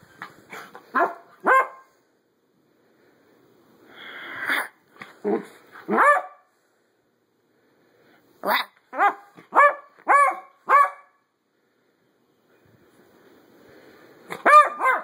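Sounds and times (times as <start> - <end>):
puppy barking: 0.9 - 1.9, 5.9 - 6.5, 8.4 - 11.2, 14.3 - 15.0.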